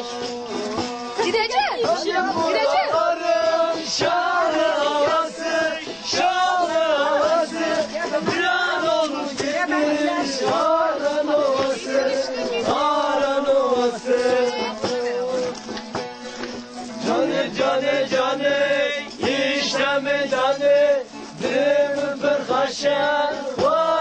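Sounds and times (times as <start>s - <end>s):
men singing folk song: 0.0s - 24.0s.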